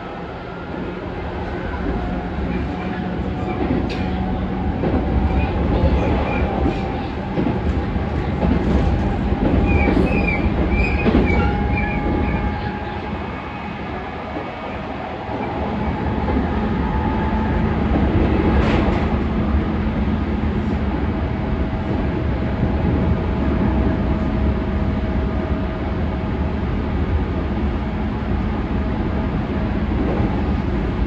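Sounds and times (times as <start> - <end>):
train wheels rumbling on rail: 0.0 - 31.0
rail-joint click: 2.6 - 12.4, 17.9 - 19.1.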